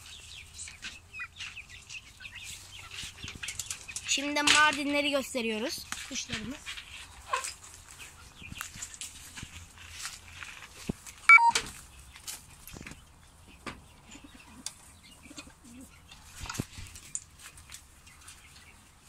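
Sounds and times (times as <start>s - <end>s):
clicks and rustles: 2.8s - 5.1s, 15.4s - 18.7s
pigeons cooing softly: 13.8s - 16.4s.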